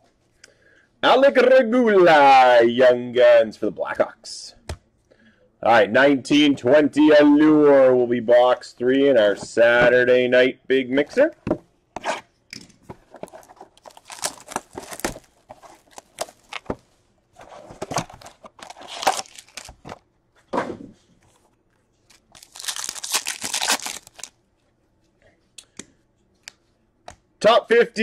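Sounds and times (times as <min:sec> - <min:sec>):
wrappers ripping and crinkling: 0:13.4 - 0:16.7, 0:18.2 - 0:19.8, 0:22.1 - 0:24.3.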